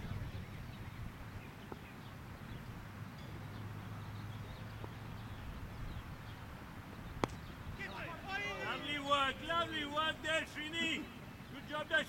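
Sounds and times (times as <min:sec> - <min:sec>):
soft distant knocks: 0:07.1 - 0:08.0.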